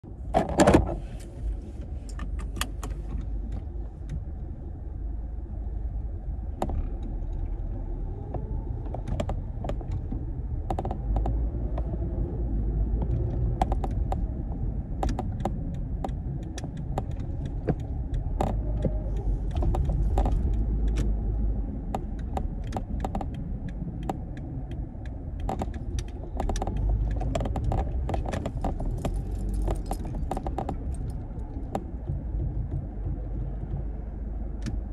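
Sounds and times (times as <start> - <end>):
car cabin rumble: 0.0 - 34.9
light clicks and jingling rattles: 25.4 - 31.9.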